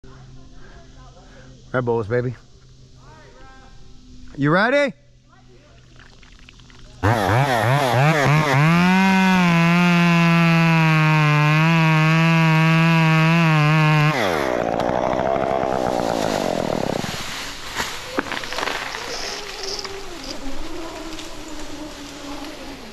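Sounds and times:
chainsaw cutting tree trunk: 7.0s - 17.3s.

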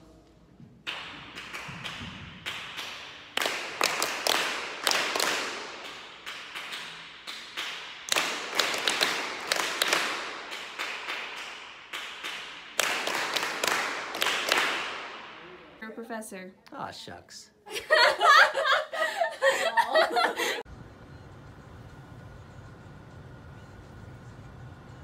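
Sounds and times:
hands clapping: 0.8s - 15.4s.

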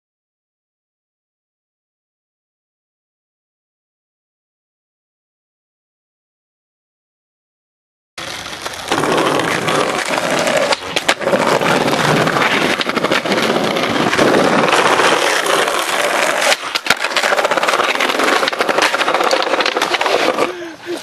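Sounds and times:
skateboard clacks: 8.2s - 21.0s
skateboard wheels rolling on tiles: 8.2s - 21.0s.

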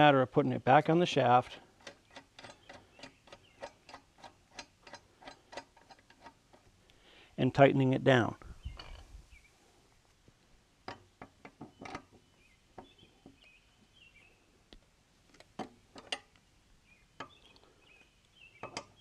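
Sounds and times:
wrench metallic clicks and knocks: 1.8s - 6.7s, 15.3s - 16.3s, 18.6s - 19.0s
faint bird chirps: 8.4s - 9.7s.

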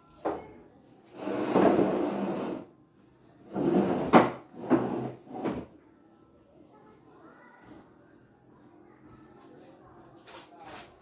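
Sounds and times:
furniture scraping: 1.1s - 2.7s, 3.4s - 5.7s.

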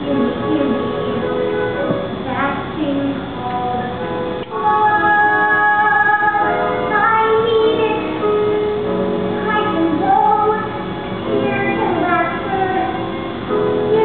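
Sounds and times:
woman singing: 2.2s - 8.4s, 9.4s - 10.7s, 11.3s - 13.0s.

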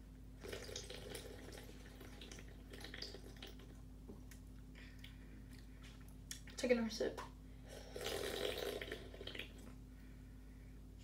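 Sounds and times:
person sipping and swallowing soda: 7.8s - 9.8s.

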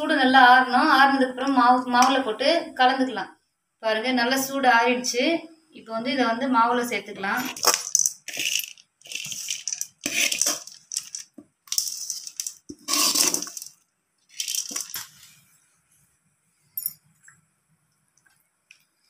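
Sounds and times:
metal spoon scraping metal pan: 7.4s - 13.7s.

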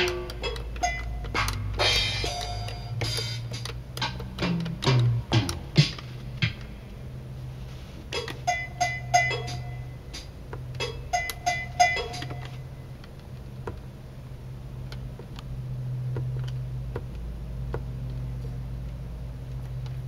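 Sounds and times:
drum machine percussion hits: 0.0s - 6.9s, 8.1s - 12.6s.

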